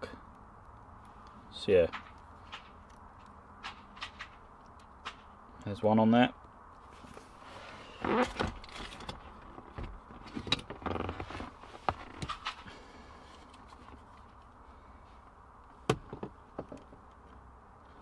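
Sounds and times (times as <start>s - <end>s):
rustling and clatter of tool: 1.8s - 5.3s, 6.8s - 14.6s.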